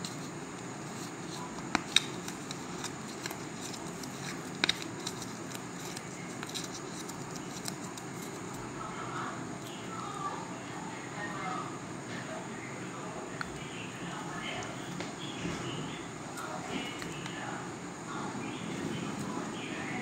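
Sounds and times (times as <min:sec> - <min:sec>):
paper crackling as folded: 0:00.0 - 0:08.7
steady background hiss: 0:00.0 - 0:20.0.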